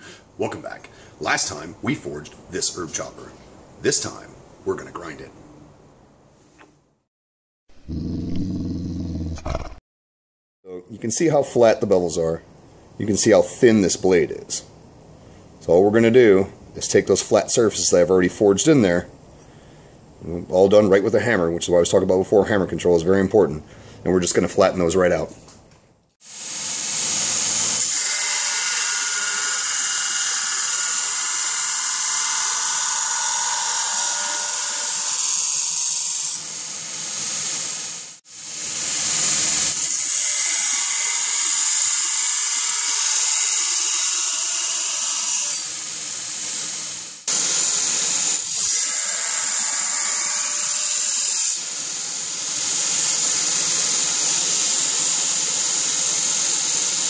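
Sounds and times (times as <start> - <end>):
belt grinder grinding steel: 26.9 - 36.1.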